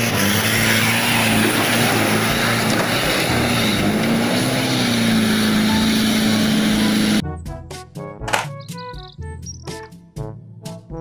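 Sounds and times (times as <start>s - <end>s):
engine-like drone: 0.0s - 7.2s
children's tune: 7.2s - 10.2s.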